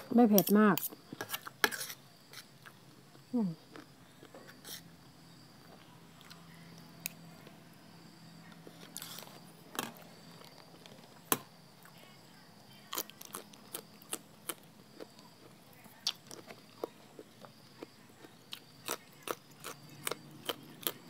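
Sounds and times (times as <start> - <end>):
crunchy chewing: 8.5 - 11.2, 12.8 - 21.0.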